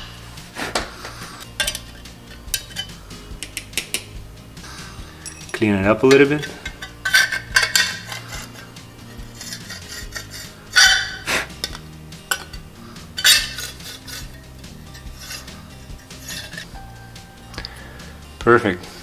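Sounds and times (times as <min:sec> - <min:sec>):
metal tool scraping plastic: 0:09.3 - 0:16.7.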